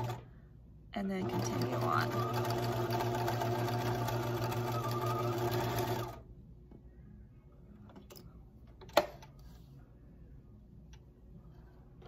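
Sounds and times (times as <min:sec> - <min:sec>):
sewing machine running: 0:00.0 - 0:00.2, 0:01.2 - 0:06.2.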